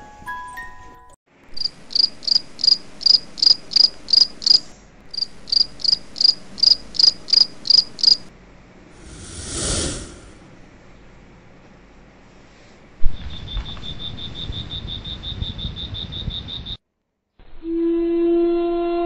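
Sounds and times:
cricket chirping: 1.6 - 8.3, 13.2 - 16.8.

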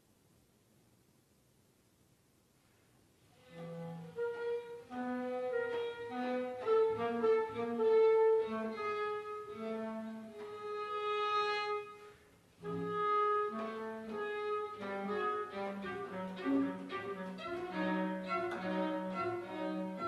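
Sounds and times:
chamber ensemble long held notes: 12.6 - 20.0.

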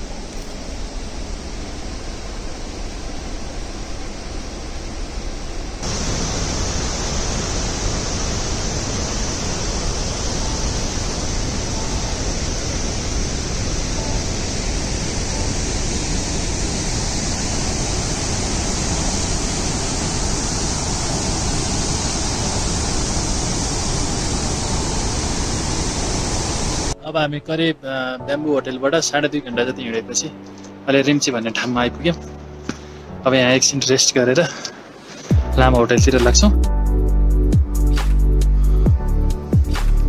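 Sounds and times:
mountain water rushing: 0.0 - 27.0.

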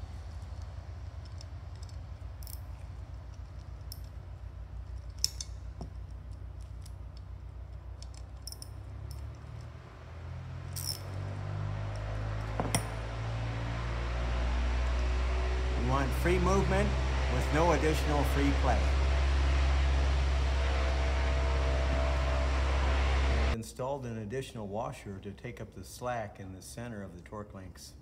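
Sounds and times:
steady low hum: 0.0 - 23.6
ratchet and wrench clinking: 0.6 - 9.8, 10.7 - 11.3, 11.9 - 13.0.

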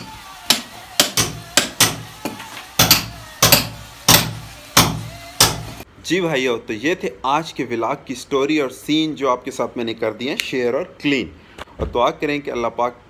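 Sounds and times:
hammer striking chisel into brick: 0.5 - 5.7.

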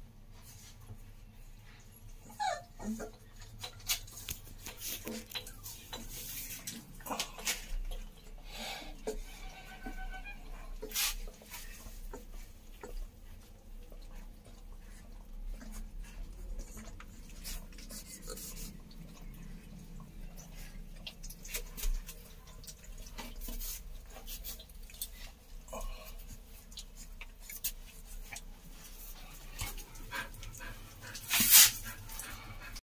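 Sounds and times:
puppies suckling: 0.3 - 32.8.

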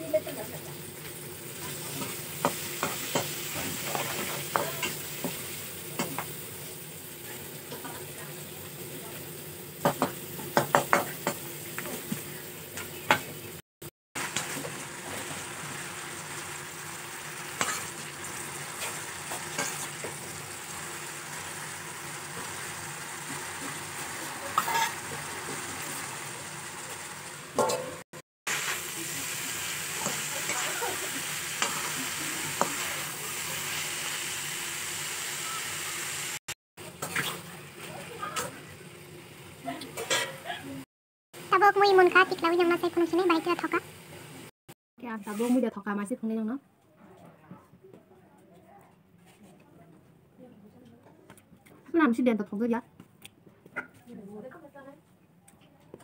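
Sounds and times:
vegetables sizzling in a wok: 0.0 - 13.6, 14.2 - 45.7
metal spatula scraping a pan: 1.6 - 5.4, 17.6 - 20.2, 23.4 - 26.1, 29.9 - 33.8, 40.0 - 40.4.

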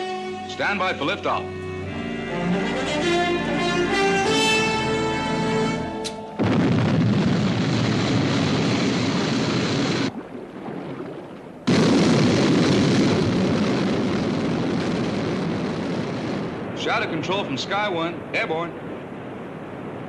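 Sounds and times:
rocket engine roar: 6.0 - 10.1.

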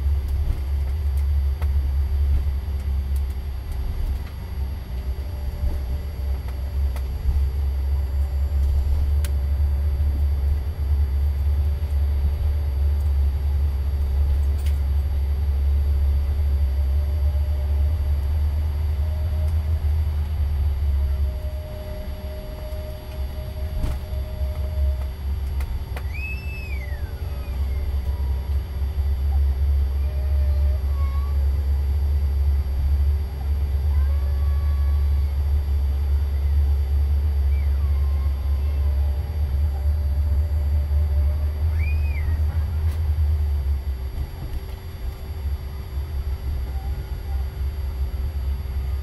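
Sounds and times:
jet engine rumble: 0.0 - 49.0
steady whining tones: 0.0 - 49.0
brief high squeal: 26.0 - 27.8, 41.7 - 42.5.

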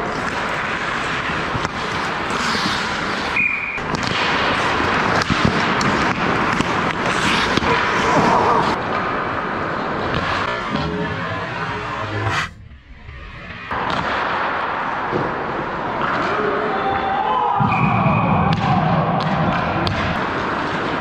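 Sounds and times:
hockey sticks clacking: 0.0 - 11.0
skates scraping on ice: 0.0 - 12.6.

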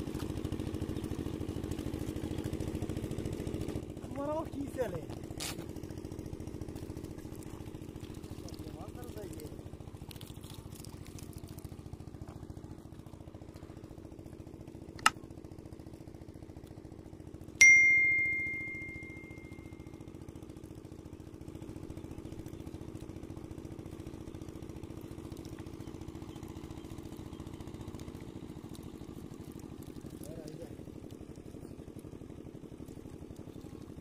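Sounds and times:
low engine hum: 0.0 - 34.0
single click: 15.0 - 15.2
bell ding: 17.6 - 19.7.

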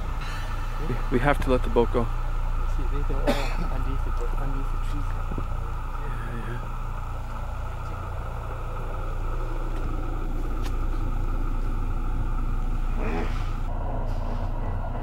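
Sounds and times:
boat motor humming: 0.0 - 15.0.

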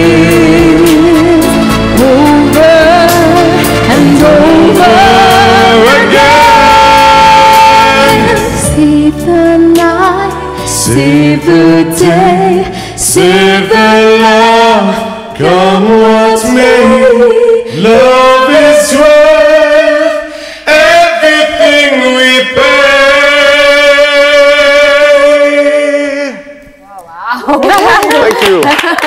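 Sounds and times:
man and woman singing duet: 0.0 - 26.6.

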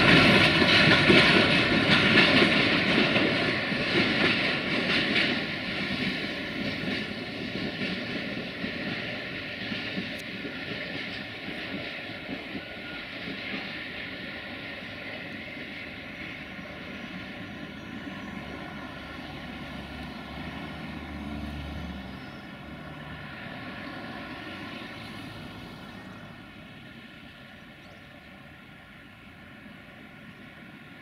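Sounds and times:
diesel locomotive engine drone: 0.0 - 31.0
freight train rumbling past: 0.0 - 31.0.

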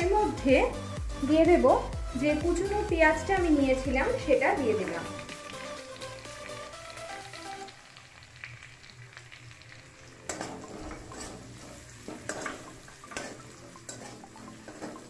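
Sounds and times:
onions sizzling in oil: 2.5 - 15.0
metal spatula scraping a wok: 10.3 - 15.0.

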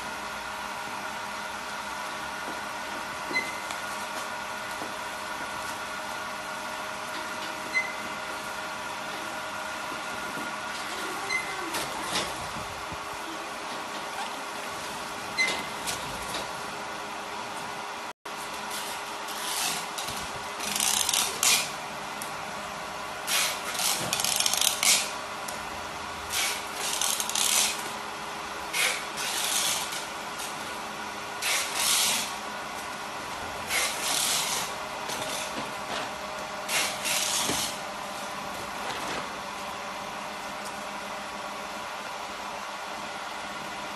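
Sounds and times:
packing machine humming: 0.0 - 43.9.

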